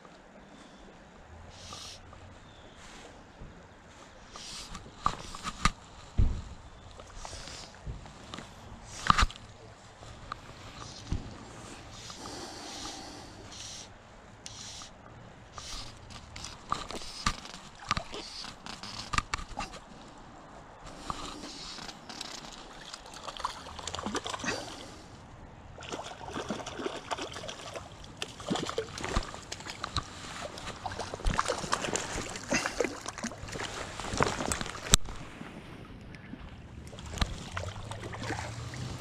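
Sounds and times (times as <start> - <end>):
stream flowing: 6.9 - 39.0
fish splashing in water: 21.0 - 25.0, 25.8 - 35.2, 36.9 - 39.0.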